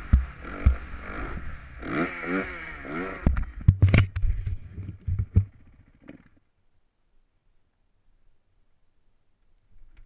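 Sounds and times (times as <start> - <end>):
bike thumping and rattling: 0.0 - 1.0, 3.2 - 6.4
dirt bike engine revving: 0.0 - 3.7.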